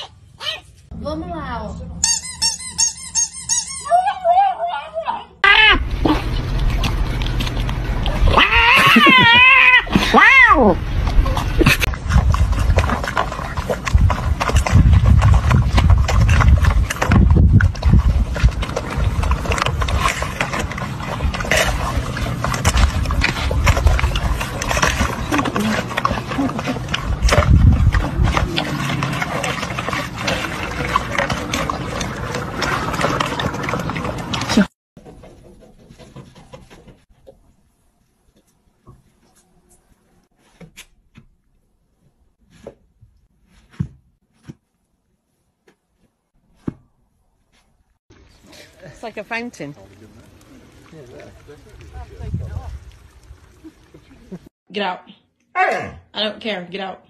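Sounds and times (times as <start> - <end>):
puppies chewing and lapping: 5.8 - 10.1, 10.8 - 37.0, 48.1 - 54.5
metal bowls scraping on ground: 11.0 - 37.0.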